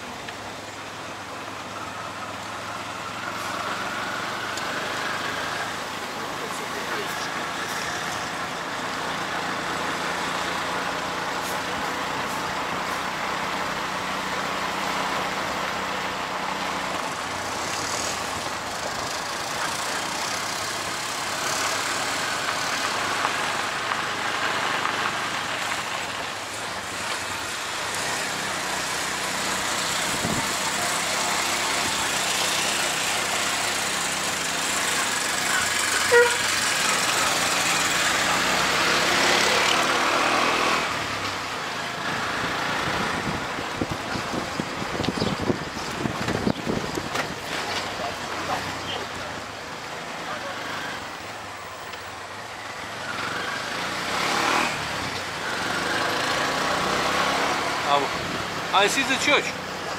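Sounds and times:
auto-rickshaw engine running: 0.0s - 59.9s
road and wind noise: 0.0s - 59.9s
horn toot: 35.9s - 36.6s.

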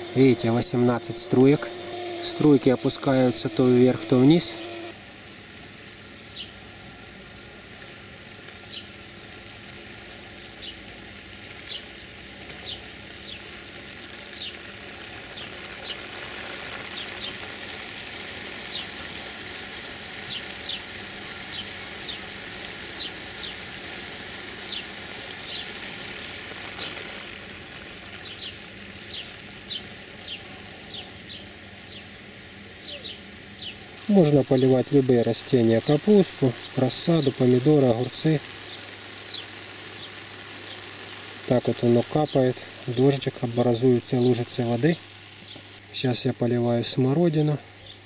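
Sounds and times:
sprinkler water spray hissing: 0.0s - 32.6s, 33.3s - 48.0s
bird chirping: 28.2s - 32.1s, 32.8s - 34.8s, 38.6s - 40.9s, 45.4s - 45.7s.

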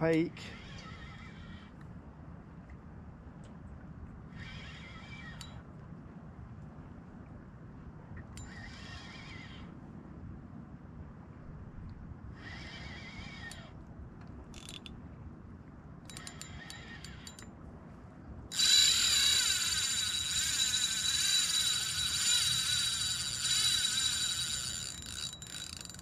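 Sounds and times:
reel clicks: 4.6s - 5.6s, 13.4s - 15.0s, 16.0s - 17.5s, 18.5s - 26.0s
fishing reel drag buzzing: 14.6s - 14.9s, 16.1s - 17.4s, 18.5s - 26.0s.

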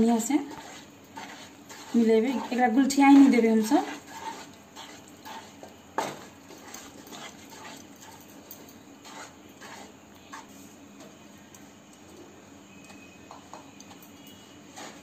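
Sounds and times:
wooden spatula scraping pan: 0.0s - 8.2s, 9.0s - 10.8s, 14.7s - 15.0s.

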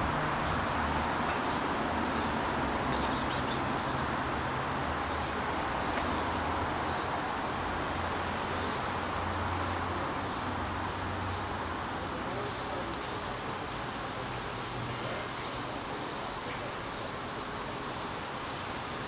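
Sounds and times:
short high chirps: 2.9s - 3.6s.

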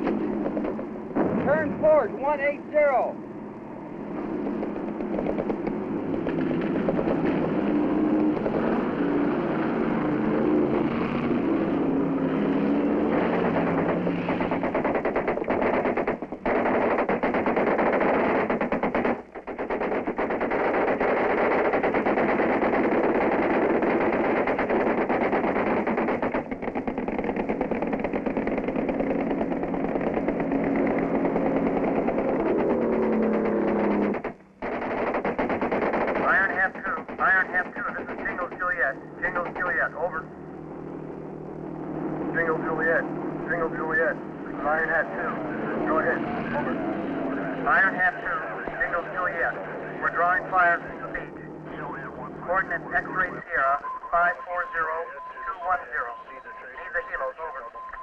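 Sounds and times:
boat engine running: 0.0s - 53.3s
machine guns firing: 4.4s - 40.2s, 44.6s - 51.4s.

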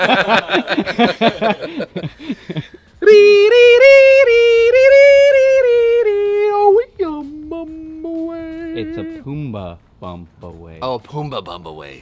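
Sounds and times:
man laughing: 0.0s - 2.9s
falsetto singing: 3.0s - 9.3s.

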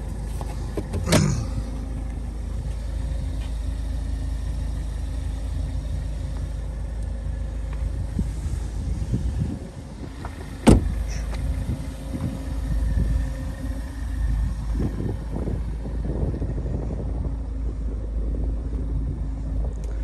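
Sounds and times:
low rumble: 0.0s - 20.0s
car door slamming shut: 0.6s - 1.7s, 10.2s - 11.2s.

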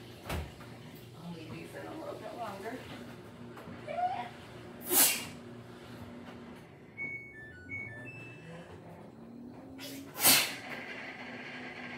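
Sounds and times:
woman sneezing loudly: 4.8s - 5.4s, 10.2s - 10.6s
washing machine electronic beeps: 6.8s - 11.9s.

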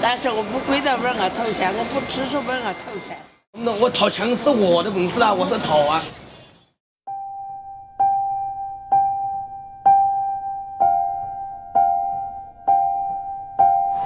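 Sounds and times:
piano striking single notes: 7.1s - 14.0s.

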